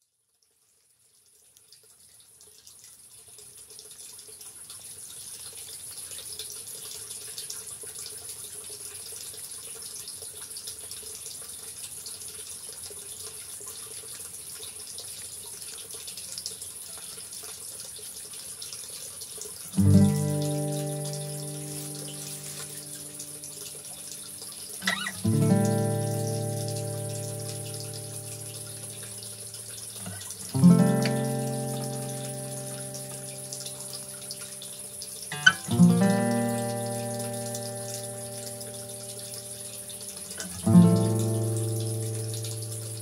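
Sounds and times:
steady rushing hiss: 0:19.9 - 0:42.3.

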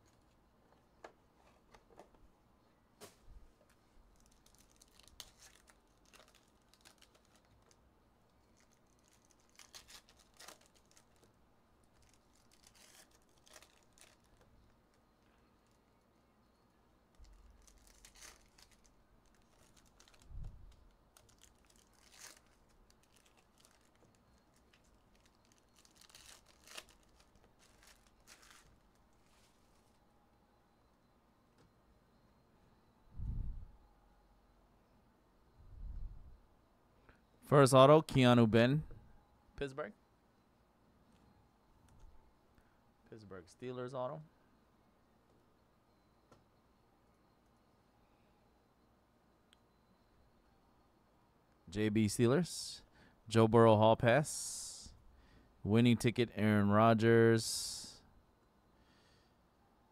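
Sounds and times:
card pack wrappers tearing: 0:04.2 - 0:07.8, 0:08.5 - 0:11.3, 0:11.9 - 0:14.4, 0:17.2 - 0:20.2, 0:20.8 - 0:28.9
cards rustling and clicking: 0:08.5 - 0:11.3, 0:21.2 - 0:29.9.

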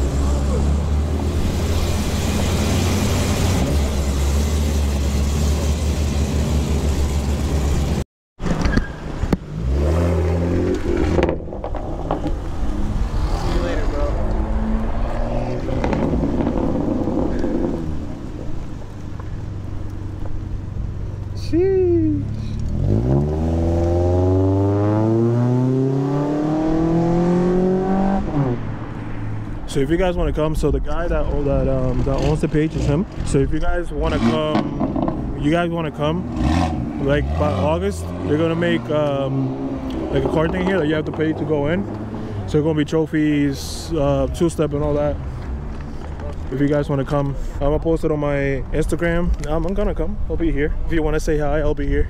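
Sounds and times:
car engine accelerating hard: 0:00.0 - 0:08.0, 0:22.6 - 0:28.9, 0:34.0 - 0:42.4
car engine rumbling: 0:00.0 - 0:52.0
car accelerating past: 0:09.6 - 0:18.3, 0:22.6 - 0:29.5.

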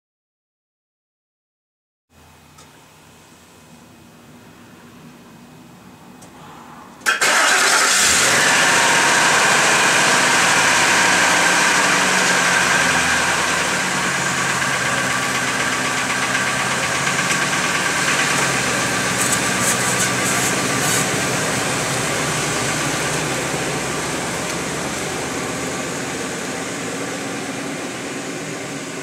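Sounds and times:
pickup engine starting: 0:07.0 - 0:29.0
pickup engine idling: 0:07.2 - 0:29.0.

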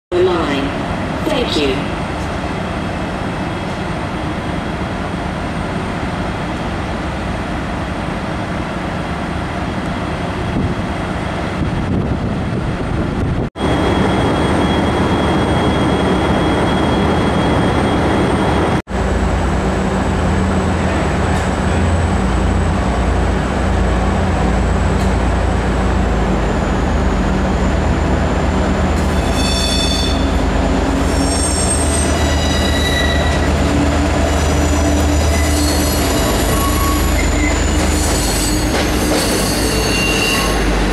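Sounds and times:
train low rumble: 0:00.1 - 0:40.9
train wheels squealing: 0:13.6 - 0:18.8, 0:28.9 - 0:40.9.

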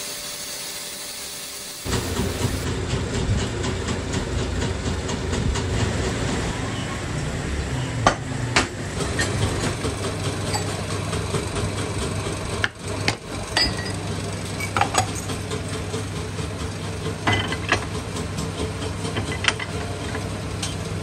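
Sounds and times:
machinery humming: 0:00.0 - 0:02.8.

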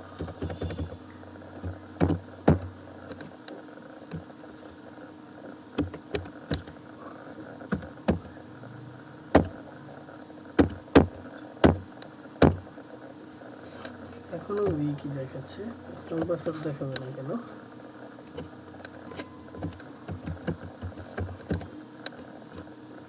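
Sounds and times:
low steady hum: 0:00.0 - 0:23.0
keyboard keys clicking: 0:00.2 - 0:01.0, 0:05.8 - 0:06.8, 0:19.1 - 0:21.7.

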